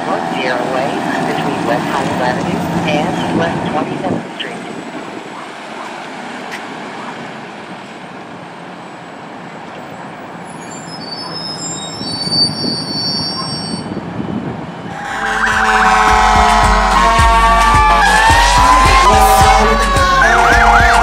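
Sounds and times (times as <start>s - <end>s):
fire engine pulling away: 8.9s - 21.0s
high brake squeal: 10.4s - 14.1s
music: 15.4s - 21.0s.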